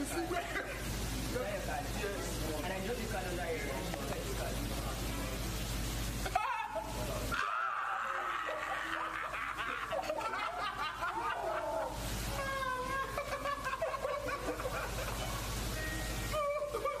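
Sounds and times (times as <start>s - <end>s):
young men laughing and exclaiming: 6.2s - 15.3s, 16.4s - 17.0s.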